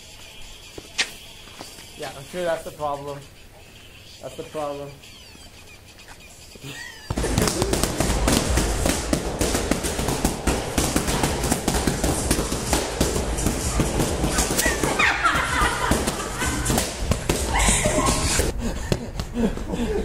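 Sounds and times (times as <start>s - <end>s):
boxing gloves smacking mitts: 7.1s - 19.3s.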